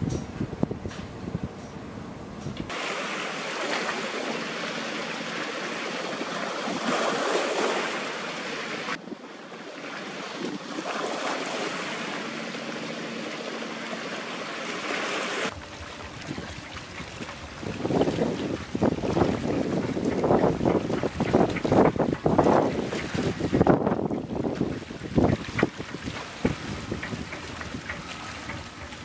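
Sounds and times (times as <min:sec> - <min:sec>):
wind: 0:00.0 - 0:29.0
river water rushing: 0:02.7 - 0:29.0
low rumble with knocks: 0:15.5 - 0:29.0.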